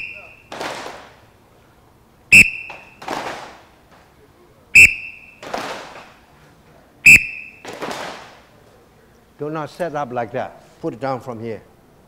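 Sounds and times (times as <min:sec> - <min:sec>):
whistle blasts: 0:00.0 - 0:00.5, 0:02.3 - 0:03.0, 0:04.8 - 0:05.5, 0:07.0 - 0:07.7.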